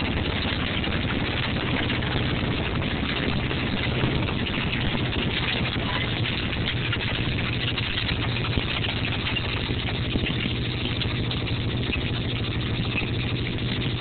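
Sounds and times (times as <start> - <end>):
tractor engine running: 0.0 - 14.0.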